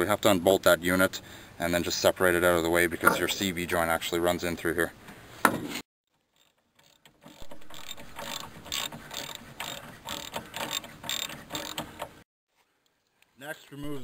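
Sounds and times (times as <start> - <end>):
ratchet wrench clicking: 6.4 - 11.9.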